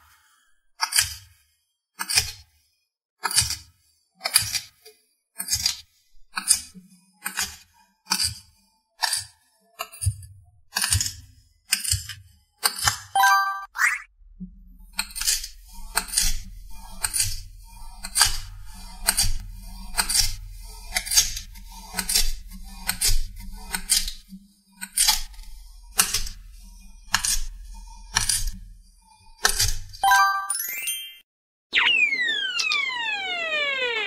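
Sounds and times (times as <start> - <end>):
rising sound effect: 25.1 - 34.0.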